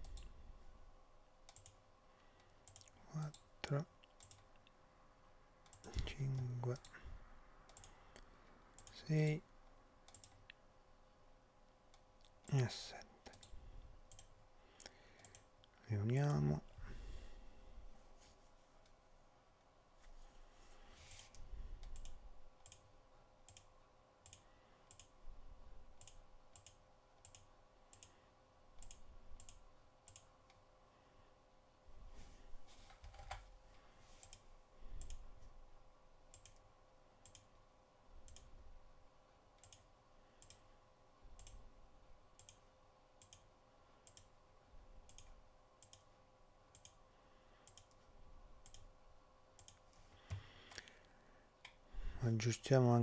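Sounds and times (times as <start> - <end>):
computer mouse clicks: 0.0 - 0.3, 1.4 - 4.8, 5.6 - 7.0, 7.7 - 9.0, 10.0 - 10.6, 13.2 - 16.4, 21.1 - 25.2, 26.0 - 28.2, 28.8 - 30.6, 34.2 - 35.3, 36.3 - 37.6, 38.2 - 38.6, 39.6 - 40.7, 41.3 - 41.6, 42.4 - 44.4, 45.0 - 46.1, 46.7 - 48.9, 49.5 - 51.8
faint steady hum: 0.0 - 53.0.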